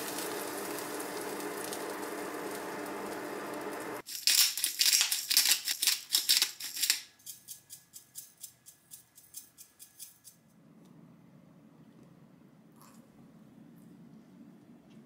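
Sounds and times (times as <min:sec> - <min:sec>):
pepper grinder rasping: 0:04.0 - 0:10.4
salt shaker shaking: 0:04.0 - 0:10.4.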